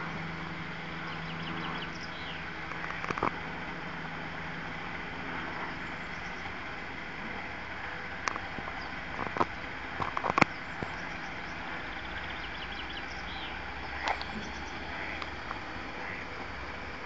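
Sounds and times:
steady machinery background noise: 0.0 - 17.0
sharp clicks and knocks: 2.7 - 3.4, 8.2 - 11.0.

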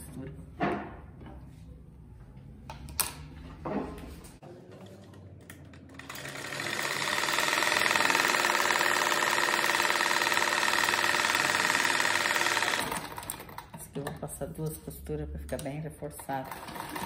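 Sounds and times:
sewing machine stitching: 5.7 - 13.8, 16.2 - 17.0.

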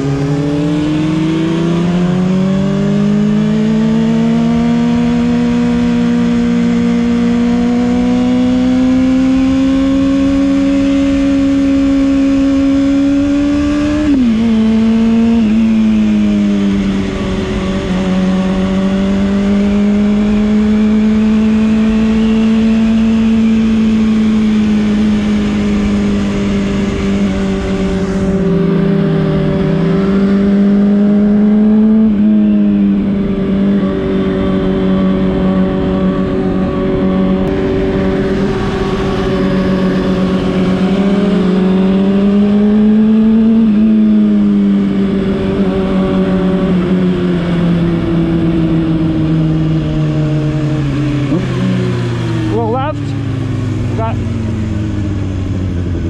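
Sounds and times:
motorcycle engine cruising: 0.0 - 56.0
wind rush: 32.5 - 42.6.

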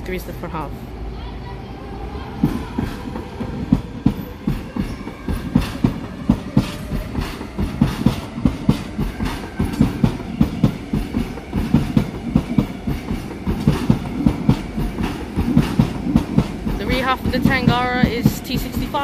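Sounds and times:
electric train rolling past: 0.0 - 19.0
train wheels clickety-clack: 2.4 - 19.0.

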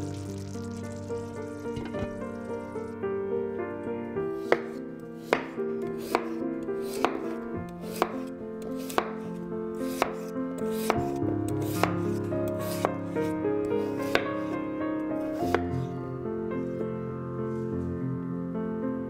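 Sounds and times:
soft background music: 0.0 - 19.0
knife slicing onto wooden board: 4.4 - 13.0, 13.8 - 14.5.

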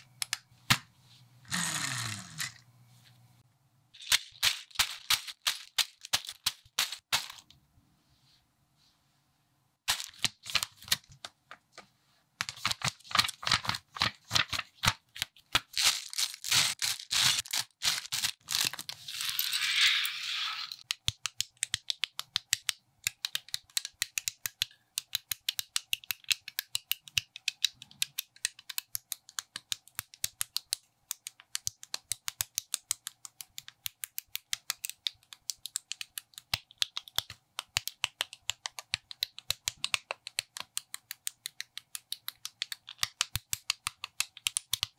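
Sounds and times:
loose plastic pieces rattling: 4.0 - 7.5
plastic bags crinkling: 15.7 - 19.4.

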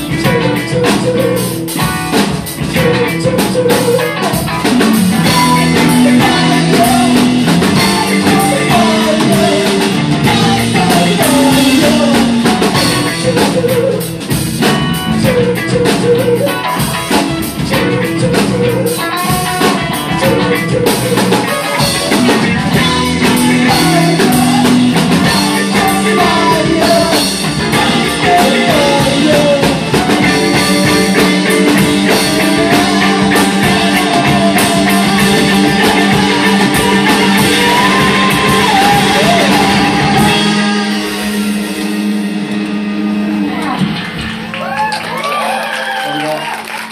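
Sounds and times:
rock band playing: 0.0 - 46.9
woman singing: 5.2 - 14.0, 17.6 - 41.5.

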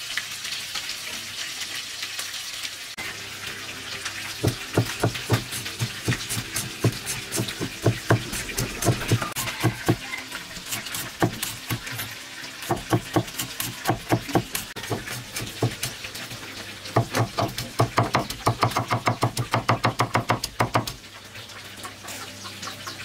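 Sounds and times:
cleaver chopping on wooden block: 4.4 - 10.0, 10.7 - 12.0, 12.7 - 16.0, 17.0 - 21.0.

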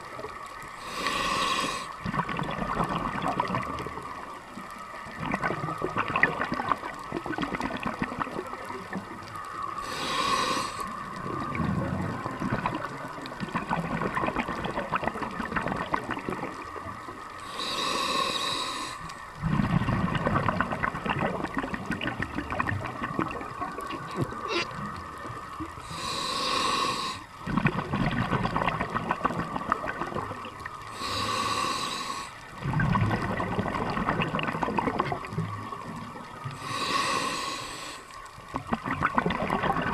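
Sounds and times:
exhaled air bubbling: 0.0 - 39.9
diver inhaling through regulator: 0.8 - 2.0, 9.8 - 11.0, 17.4 - 19.2, 25.8 - 27.3, 30.9 - 32.4, 36.6 - 38.2.

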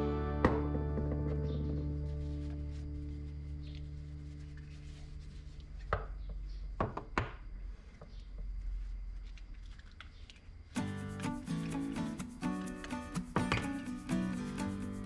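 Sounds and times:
cloth rag rubbing tools: 2.0 - 6.2, 10.7 - 15.0.

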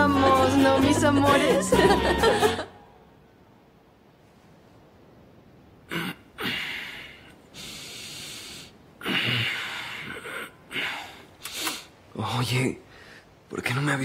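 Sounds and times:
breathy snorts: 5.9 - 11.9
man breathing heavily: 6.4 - 12.0.

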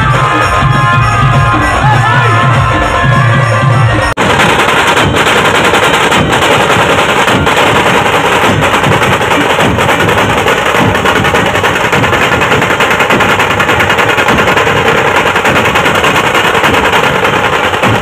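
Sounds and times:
drums beaten with sticks: 0.0 - 18.0.

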